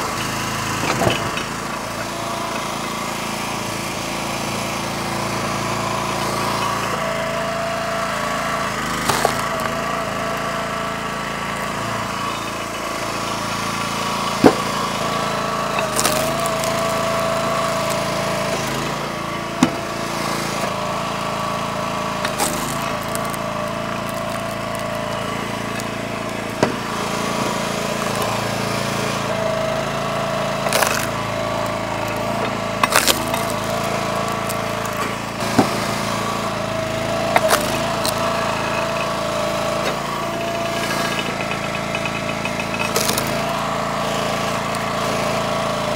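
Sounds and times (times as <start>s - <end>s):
small gas engine running: 0.0s - 45.9s
wood knocking and cracking: 9.0s - 9.8s, 14.4s - 14.7s, 22.2s - 26.9s, 30.6s - 35.8s, 42.6s - 43.4s.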